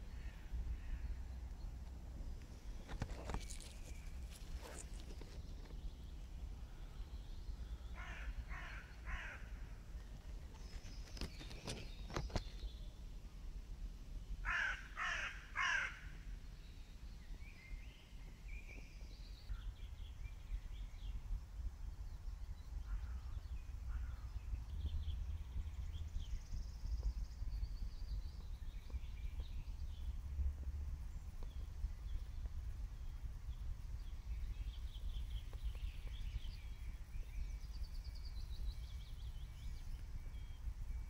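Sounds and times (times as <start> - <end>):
small birds chirping: 0.0 - 13.2, 16.4 - 30.3, 31.0 - 41.0
crow cawing: 8.0 - 9.6, 14.4 - 16.2.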